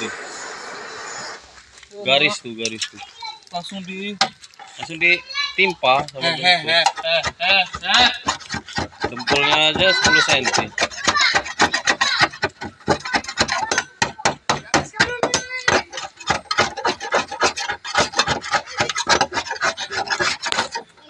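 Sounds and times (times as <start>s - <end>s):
metal scraper scraping filler: 6.8s - 21.0s.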